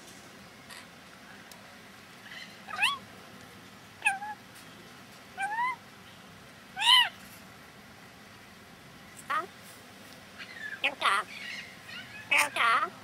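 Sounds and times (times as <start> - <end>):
parrot calls: 2.2 - 3.0, 4.0 - 4.4, 5.4 - 5.8, 6.8 - 7.2, 9.2 - 9.5, 10.4 - 13.0.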